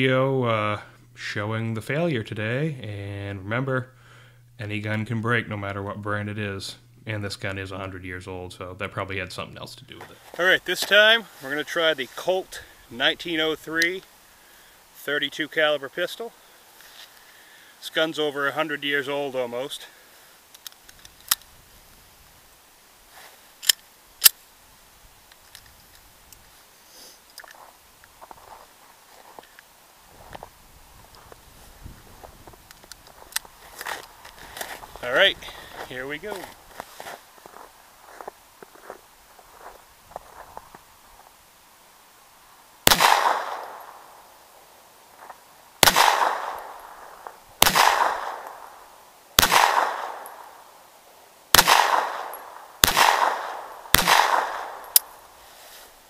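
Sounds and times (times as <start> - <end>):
soft handling noise: 16.7 - 17.3, 25.2 - 41.4
sharp metallic pistol clicks: 42.9 - 44.0, 45.8 - 47.0, 47.6 - 48.8, 49.4 - 50.6, 51.5 - 55.2.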